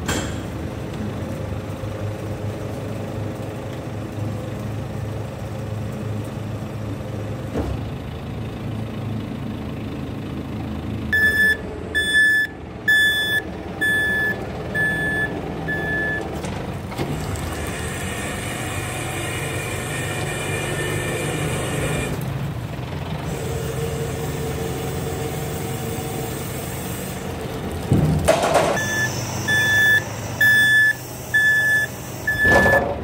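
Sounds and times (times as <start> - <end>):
garbage truck packer humming: 0.0 - 33.0
warning beeps: 11.2 - 16.2, 28.8 - 32.9.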